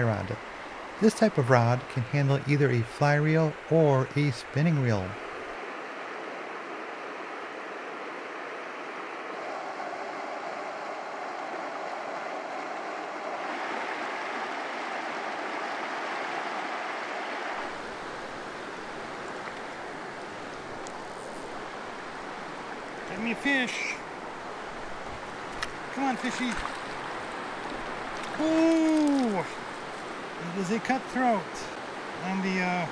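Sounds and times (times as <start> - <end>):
river rushing over rocks: 5.1 - 32.9.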